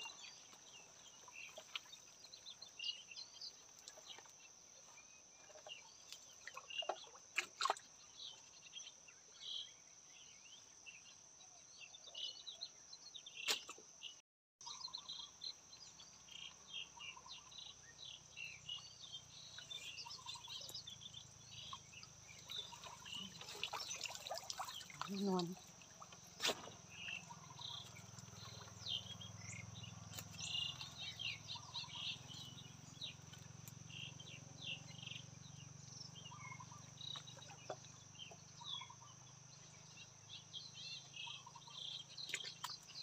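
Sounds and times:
small birds chirping: 0.0s - 11.2s, 11.8s - 43.0s
sharp clicks from net and water: 6.1s - 8.0s, 21.6s - 28.9s, 30.1s - 32.0s, 42.2s - 43.0s.

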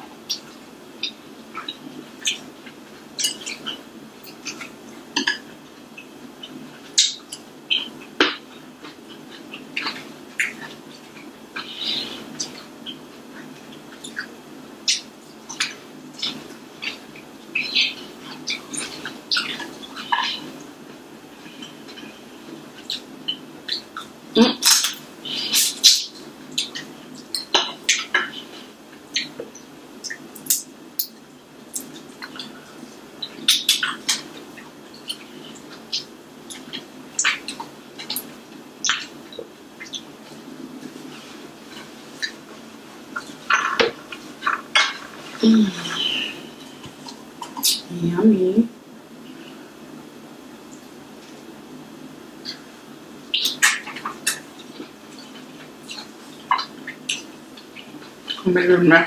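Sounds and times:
mouth smacks and chewing: 22.8s - 45.4s.

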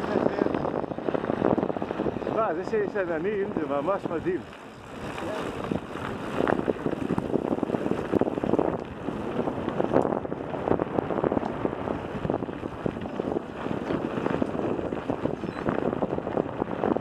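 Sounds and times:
bike rattling and knocking: 0.0s - 17.0s
wind buffeting microphone: 0.0s - 17.0s
tyres crunching on gravel: 0.3s - 10.0s.

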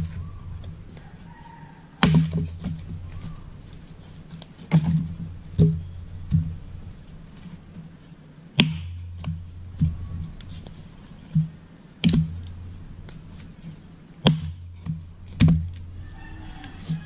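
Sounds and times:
axe splitting firewood: 2.0s - 3.6s, 4.2s - 6.7s, 8.6s - 16.1s.

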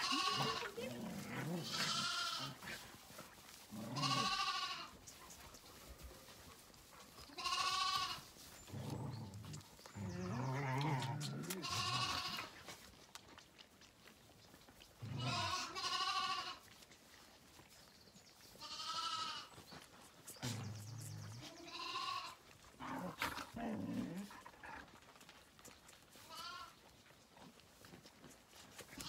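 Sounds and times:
lambs bleating: 0.0s - 2.8s, 3.7s - 5.0s, 7.3s - 8.3s, 10.3s - 12.6s, 15.0s - 16.6s, 18.6s - 19.5s, 21.4s - 23.0s, 26.2s - 26.8s.

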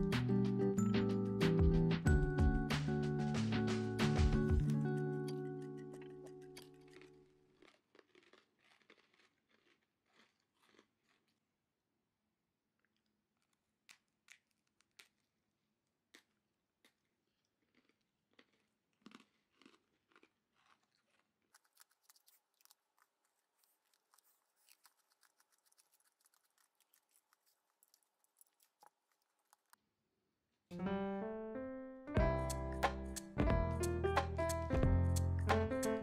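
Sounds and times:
piano music: 0.0s - 6.8s, 30.7s - 36.0s
cracker crunching being chewed: 4.7s - 11.8s, 12.6s - 29.8s.

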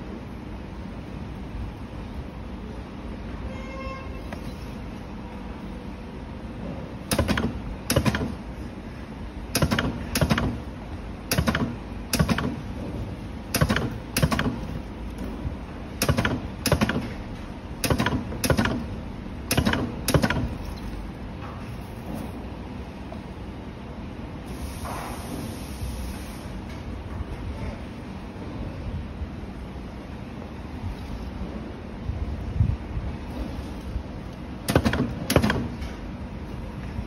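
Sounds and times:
spot welder clacks: 7.0s - 8.4s, 9.5s - 10.7s, 11.3s - 12.8s, 13.5s - 15.3s, 16.0s - 20.8s, 34.6s - 36.0s.

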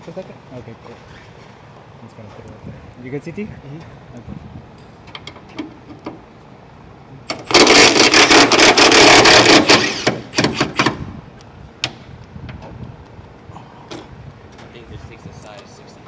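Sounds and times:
power wrench running: 7.3s - 11.0s.

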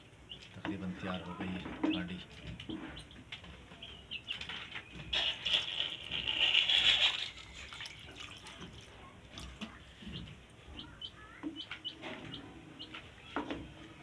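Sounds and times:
water pouring into pot: 6.2s - 8.9s.

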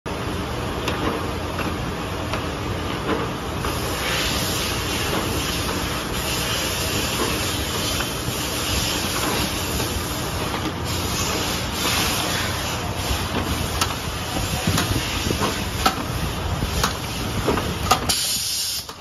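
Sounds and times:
machine clicks and knocks: 0.8s - 3.8s, 9.0s - 10.8s, 13.0s - 19.0s.

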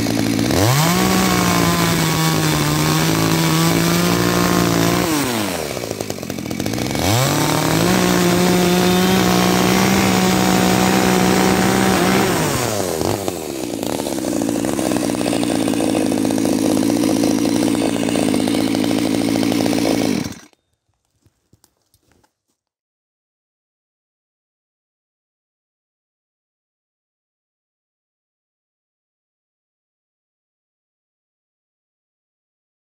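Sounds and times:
chainsaw cutting log: 0.0s - 22.3s.

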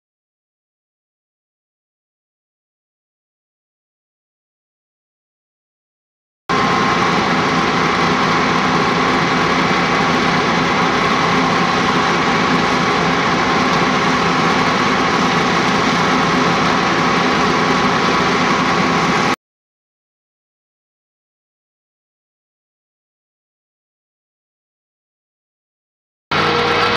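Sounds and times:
fire engine humming: 6.5s - 19.4s, 26.3s - 26.9s.

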